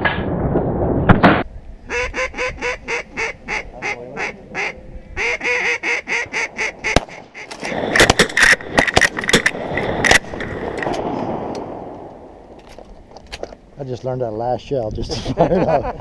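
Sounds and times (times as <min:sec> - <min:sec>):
duck call quacking: 0:01.9 - 0:07.8
shotgun shots: 0:06.8 - 0:12.0.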